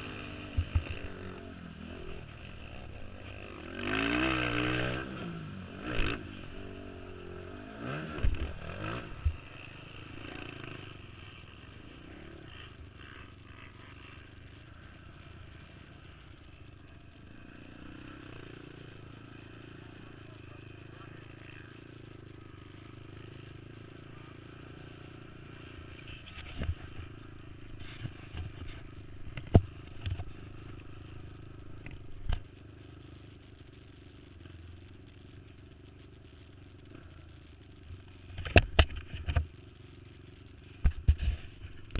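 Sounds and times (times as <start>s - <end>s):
quad engines revving: 0.0s - 32.0s
distant drone of quads: 0.0s - 38.6s.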